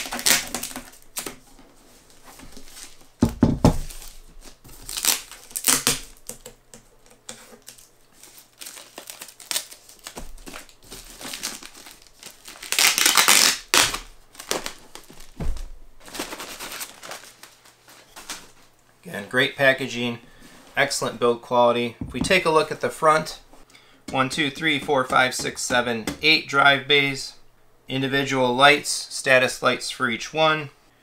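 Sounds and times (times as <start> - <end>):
plastic wrapping crinkling: 0.0 - 1.5, 2.1 - 18.8
dull thump: 15.4 - 15.8, 22.0 - 22.4.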